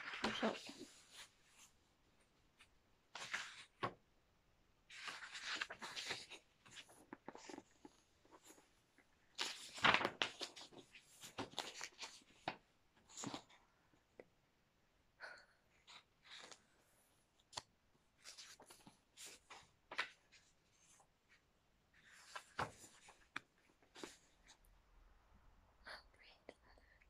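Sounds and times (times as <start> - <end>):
book pages being turned: 0.0 - 1.8, 2.6 - 4.0, 4.9 - 8.7, 9.3 - 13.6, 15.8 - 16.7, 17.4 - 21.4, 22.0 - 24.6.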